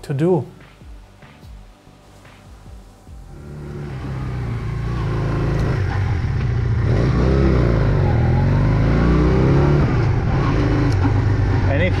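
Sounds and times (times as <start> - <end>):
motorcycle engine revving: 3.3 - 12.0.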